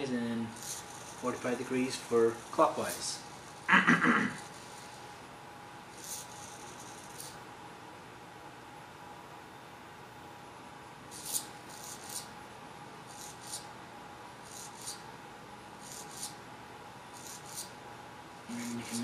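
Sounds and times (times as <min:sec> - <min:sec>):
servo motor whirring in bursts: 0:00.5 - 0:03.7, 0:04.3 - 0:05.1, 0:05.9 - 0:07.4, 0:11.1 - 0:12.3, 0:13.1 - 0:13.7, 0:14.4 - 0:15.1, 0:15.8 - 0:16.4, 0:17.2 - 0:17.7.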